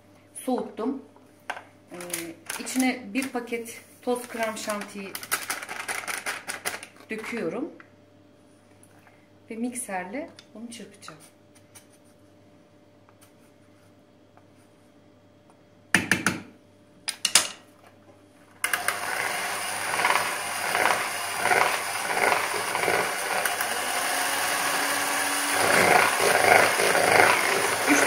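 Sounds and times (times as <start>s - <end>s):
electric hand mixer whining: 18.6s - 28.0s.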